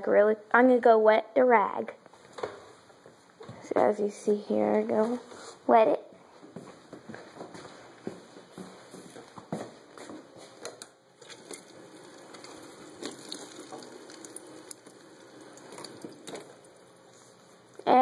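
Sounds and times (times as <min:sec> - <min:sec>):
faucet running into metal sink: 0:11.2 - 0:16.7.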